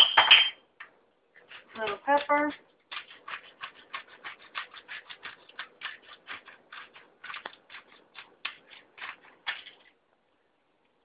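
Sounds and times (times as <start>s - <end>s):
pepper mill grinding: 1.4s - 10.0s.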